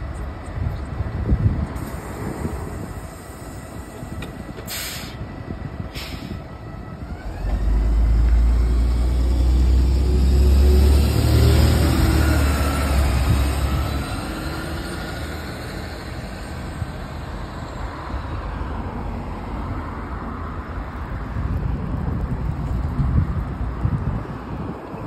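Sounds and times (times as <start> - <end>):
bus engine rumbling and whining: 0.0 - 25.0
compressed air hisses: 1.8 - 5.2, 5.9 - 6.4.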